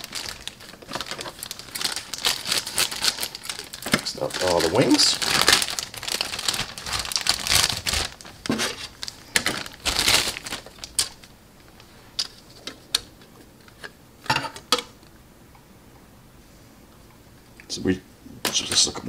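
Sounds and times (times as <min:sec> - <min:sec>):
plastic bag crinkling: 0:00.0 - 0:12.8.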